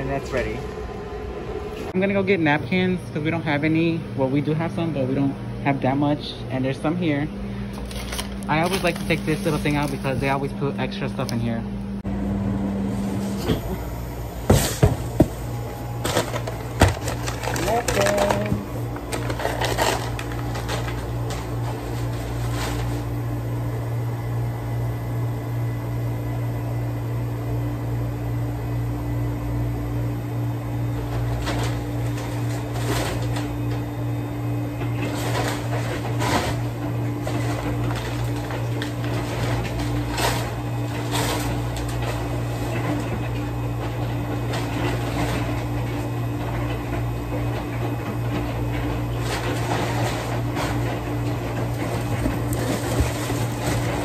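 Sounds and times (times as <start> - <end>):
kitchen equipment hum: 0.0 - 54.0
paper bags rustling: 7.6 - 10.5, 16.0 - 23.1, 34.8 - 43.4, 48.5 - 54.0.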